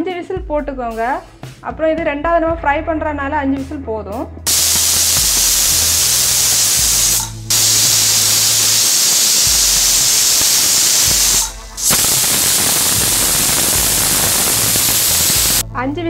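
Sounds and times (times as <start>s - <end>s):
pressure cooker whistling steam: 4.5s - 15.6s.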